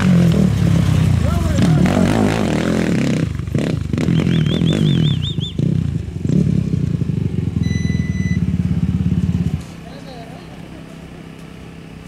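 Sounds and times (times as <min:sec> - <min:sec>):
race vehicle engine running: 0:00.0 - 0:12.0
warbling whistle: 0:04.2 - 0:05.6
short electronic beep: 0:07.6 - 0:08.6.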